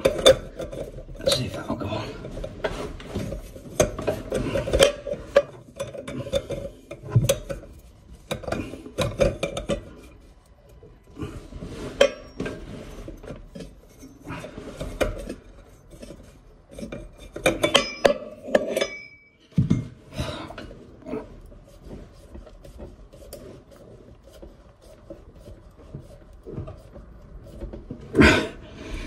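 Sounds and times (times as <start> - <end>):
spanner scraping on ceramic basin: 0.0 - 10.2, 11.7 - 19.3
hands rubbing and scraping: 20.8 - 28.1.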